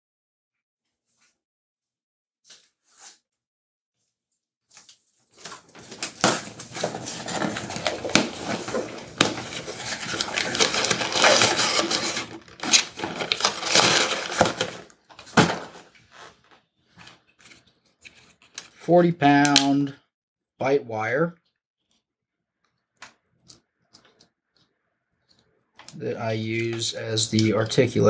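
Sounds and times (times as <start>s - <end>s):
hands rummaging through tools: 5.4s - 18.6s.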